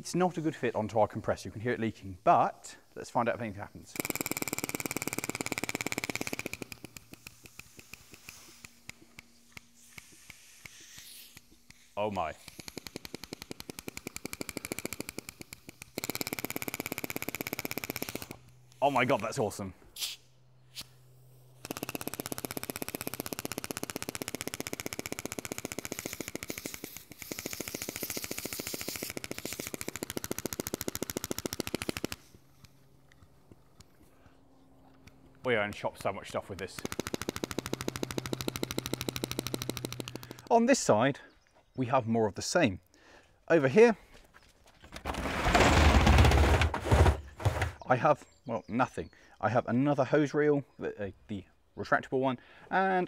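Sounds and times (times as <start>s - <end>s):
pneumatic air tool: 3.9s - 19.0s, 20.0s - 32.8s, 36.7s - 40.5s.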